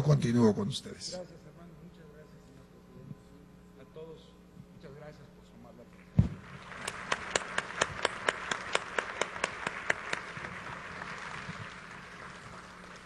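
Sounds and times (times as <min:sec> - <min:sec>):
close loud hand clapping: 0:06.2 - 0:13.0
audience applauding: 0:06.4 - 0:13.0.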